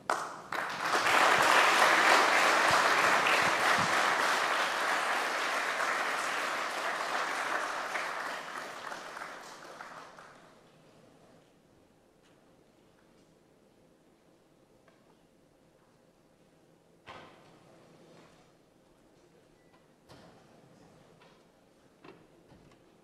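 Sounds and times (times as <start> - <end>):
audience applauding: 0.0 - 10.5.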